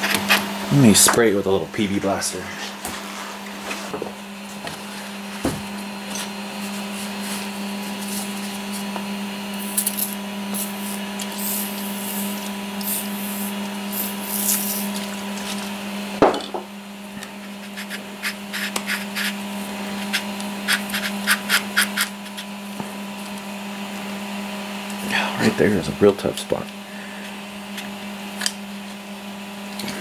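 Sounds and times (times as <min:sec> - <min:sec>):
steady background hum: 0:00.0 - 0:30.0
aerosol spray hissing bursts: 0:09.6 - 0:14.9.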